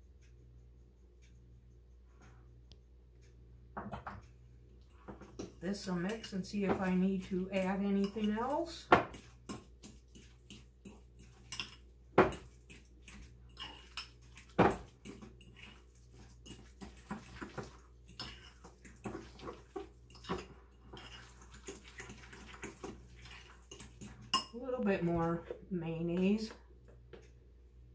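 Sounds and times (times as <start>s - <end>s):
utensil scraping glass bowl: 7.6s - 25.4s.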